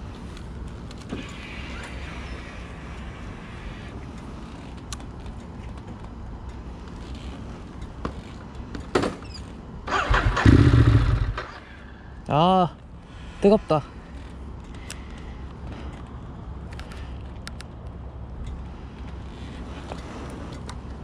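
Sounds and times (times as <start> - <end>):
motorcycle engine idling: 9.9 - 11.9.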